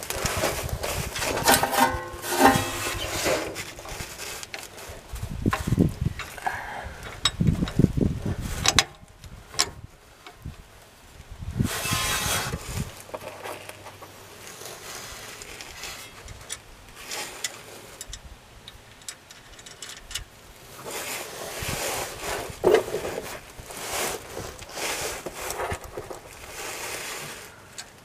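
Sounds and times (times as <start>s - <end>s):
bolts clinking on steel bracket: 1.2s - 4.6s, 7.0s - 7.8s, 17.4s - 20.3s.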